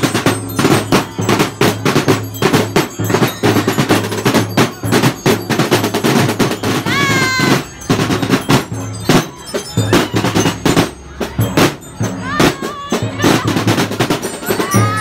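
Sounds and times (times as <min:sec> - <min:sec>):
marching drum band playing: 0:00.0 - 0:15.0.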